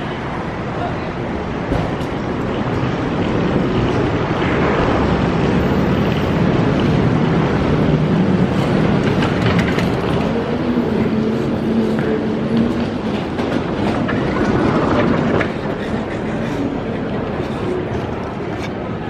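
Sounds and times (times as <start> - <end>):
loud steady rushing noise: 0.0 - 19.0.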